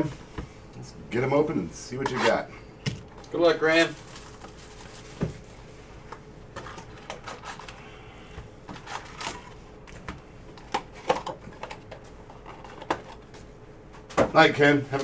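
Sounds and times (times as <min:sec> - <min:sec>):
foil wrappers crinkling: 0:03.3 - 0:05.5, 0:08.7 - 0:09.6.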